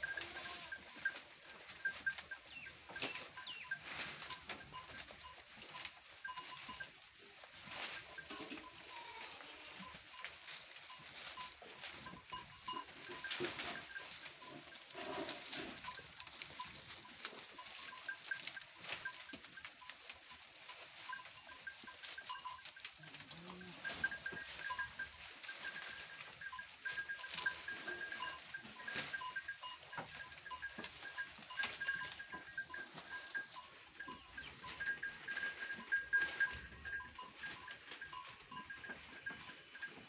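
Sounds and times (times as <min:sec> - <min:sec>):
low goat bleat: 0:00.0 - 0:00.9, 0:08.6 - 0:09.8
goats chewing: 0:00.0 - 0:40.0
leaves and twigs rustling and snapping: 0:13.0 - 0:29.2, 0:30.2 - 0:40.0.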